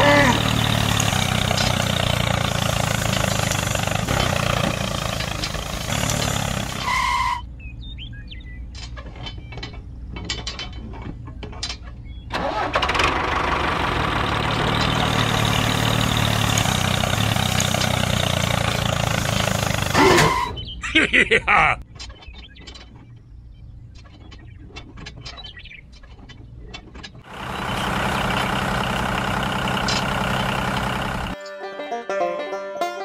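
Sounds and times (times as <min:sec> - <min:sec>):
tractor engine running: 0:00.0 - 0:21.8, 0:23.9 - 0:31.4
light clicks and rattles: 0:08.7 - 0:12.0.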